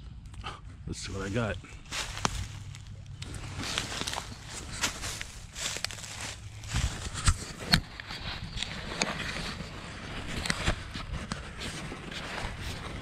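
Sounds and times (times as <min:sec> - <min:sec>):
footsteps crunching through leaves: 0:01.1 - 0:07.2.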